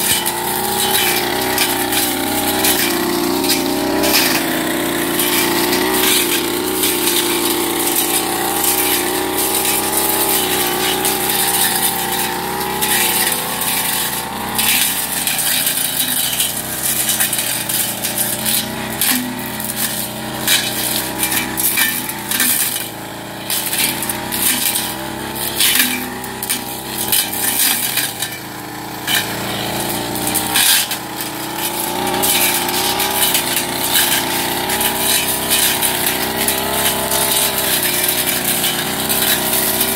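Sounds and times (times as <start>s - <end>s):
brush cutter engine: 0.0s - 39.9s.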